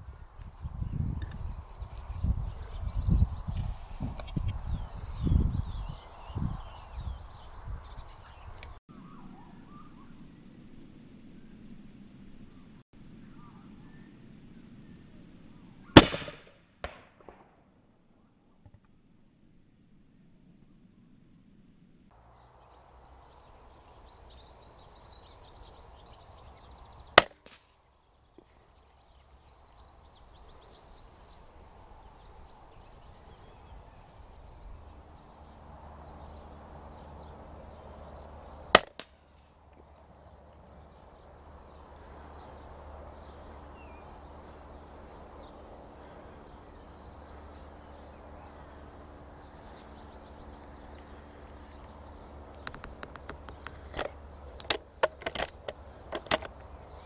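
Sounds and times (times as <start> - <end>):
rifle shots: 16.0 - 17.4, 38.8 - 39.1.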